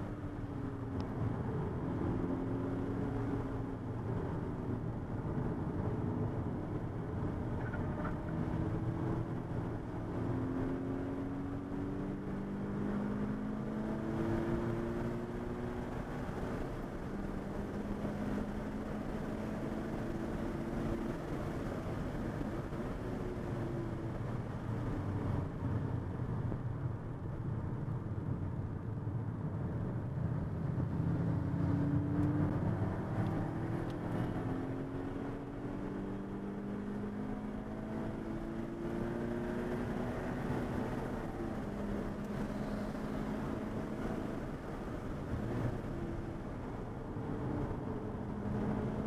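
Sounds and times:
road and tyre noise: 0.0s - 49.0s
car engine revving: 30.8s - 49.0s.

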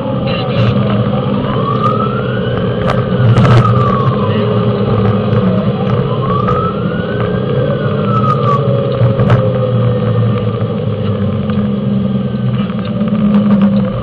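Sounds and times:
fire engine engine and road noise: 0.0s - 14.0s
siren winding: 4.9s - 9.4s.

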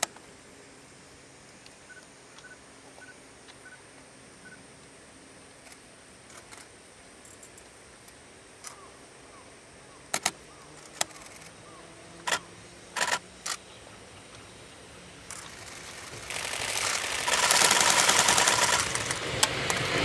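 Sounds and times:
distant train hum: 0.0s - 20.0s
train wheels clacking over rail joints: 15.3s - 20.0s.

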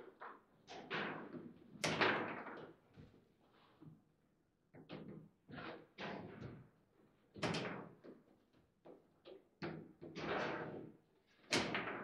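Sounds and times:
foosball ball knocks and clacks: 11.5s - 12.0s.

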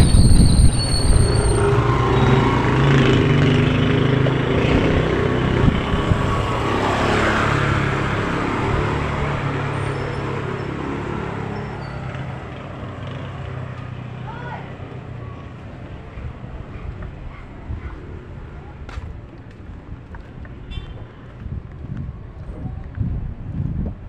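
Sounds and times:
motorcycle engine passing: 0.0s - 14.1s.

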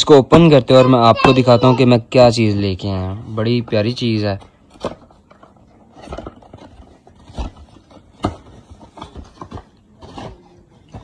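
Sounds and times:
packaging being opened: 3.8s - 11.0s.

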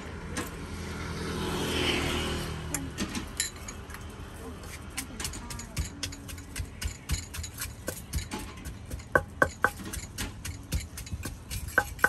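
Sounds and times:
knocking and tapping of food preparation: 5.0s - 12.0s.

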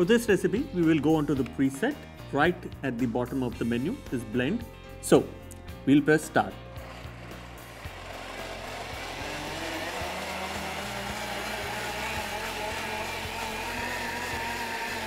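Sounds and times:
blender motor whining: 6.6s - 15.0s.

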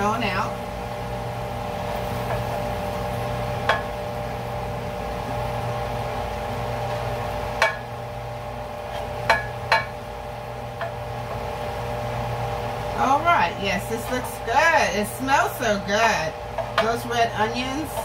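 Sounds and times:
kitchen fan humming: 0.0s - 18.0s.

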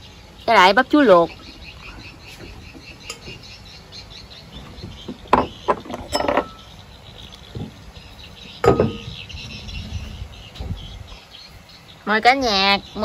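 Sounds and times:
dishes clinking and knocking: 4.8s - 6.7s, 8.6s - 9.2s.

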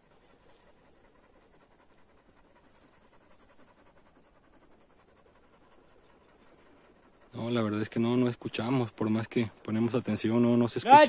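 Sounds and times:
quick rhythmic panting: 0.0s - 11.0s.

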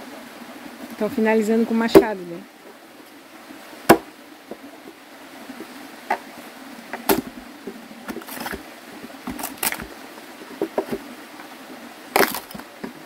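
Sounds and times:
axe striking log: 3.9s - 4.1s, 6.9s - 7.4s, 12.2s - 12.6s.

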